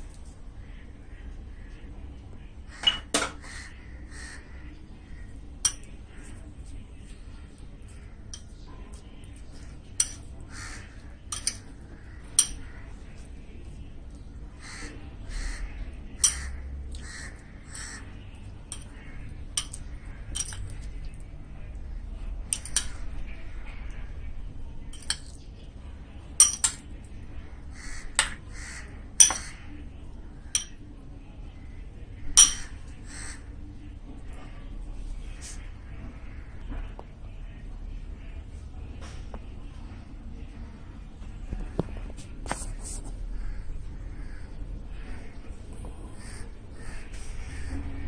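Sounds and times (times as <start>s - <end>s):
spoon clinking against bowl: 5.6s - 5.9s, 10.0s - 10.2s, 11.3s - 11.7s, 12.4s - 12.7s, 16.2s - 16.5s, 18.7s - 18.9s, 19.6s - 20.8s, 24.9s - 25.4s, 26.4s - 26.8s, 29.2s - 29.6s, 30.5s - 30.8s, 32.4s - 32.8s.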